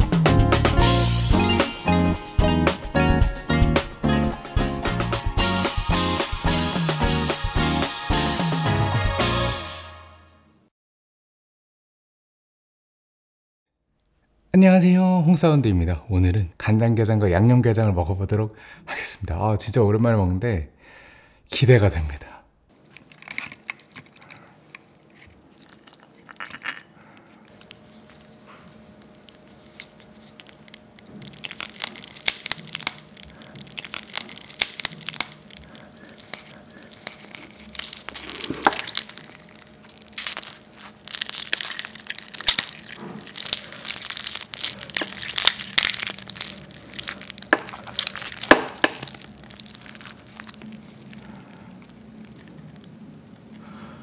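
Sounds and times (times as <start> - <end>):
crab shells cracking: 22.8 - 54.0.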